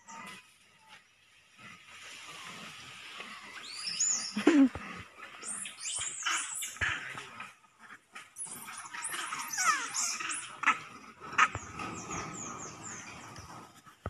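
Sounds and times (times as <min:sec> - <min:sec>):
young monkeys squealing: 0:05.4 - 0:06.9, 0:08.4 - 0:10.8.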